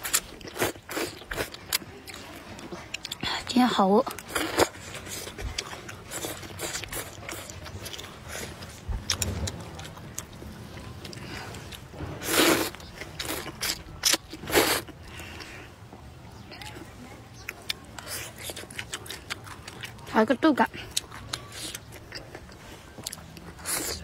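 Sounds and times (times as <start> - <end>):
wet chewing clicks: 0.0 - 15.7, 16.4 - 24.0
slurping noodles: 11.3 - 13.8, 14.4 - 15.4.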